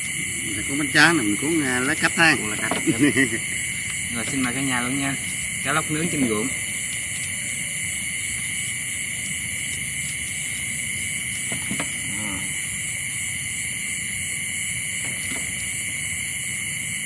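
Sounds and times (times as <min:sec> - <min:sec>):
night insects droning: 0:00.0 - 0:17.0
voice murmuring: 0:00.1 - 0:03.5, 0:12.0 - 0:12.6.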